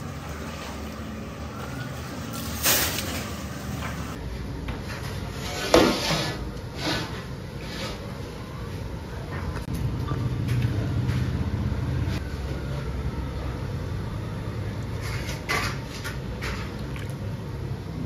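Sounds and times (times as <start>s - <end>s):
engine running with low hum: 9.6s - 15.1s.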